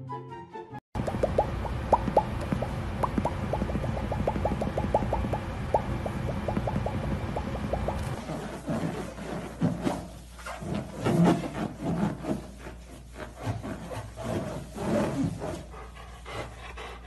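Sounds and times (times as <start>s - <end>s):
rubbery balloon squeaks and scrapes: 8.2s - 15.7s.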